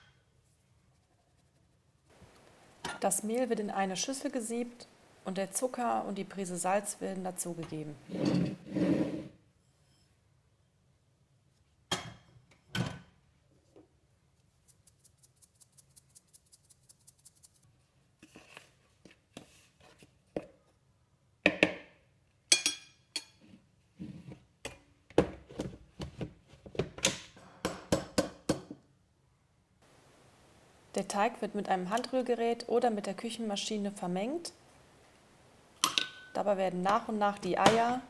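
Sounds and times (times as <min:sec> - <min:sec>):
metal spoon clinking in bowl: 0:22.5 - 0:23.4, 0:35.8 - 0:36.4.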